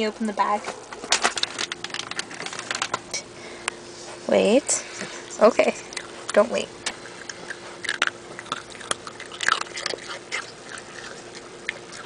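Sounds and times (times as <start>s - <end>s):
dog crunching biscuit: 0.7s - 3.2s, 5.7s - 12.0s.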